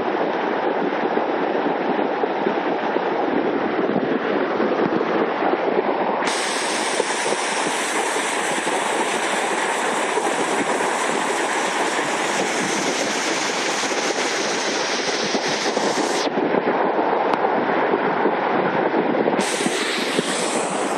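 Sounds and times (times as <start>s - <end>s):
flood water rushing: 19.4s - 20.9s.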